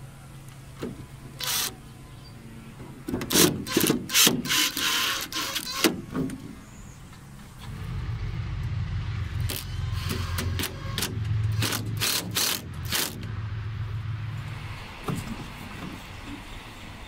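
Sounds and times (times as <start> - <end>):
power drill grinding plastic: 3.3 - 6.0
low motor hum: 6.6 - 17.0.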